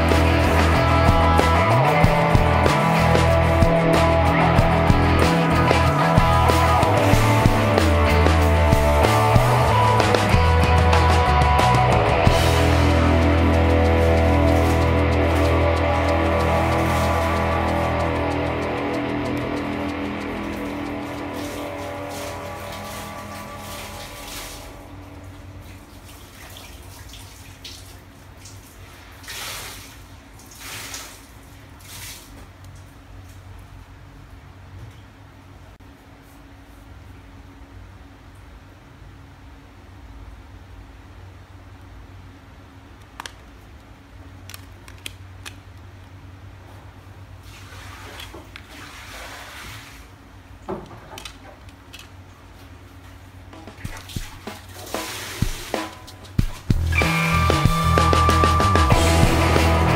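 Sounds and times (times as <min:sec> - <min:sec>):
low steady hum: 0:00.0 - 0:29.0
small plastic clicks: 0:43.0 - 0:45.8.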